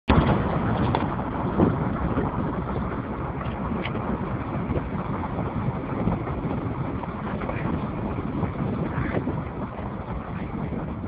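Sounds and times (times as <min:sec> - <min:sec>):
moving vehicle rumble: 0:00.1 - 0:11.0
wind buffeting microphone: 0:00.1 - 0:11.0.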